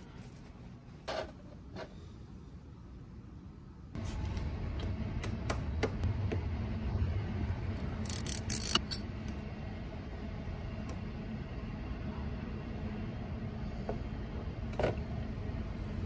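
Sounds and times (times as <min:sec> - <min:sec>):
low rumble: 0:04.0 - 0:16.0.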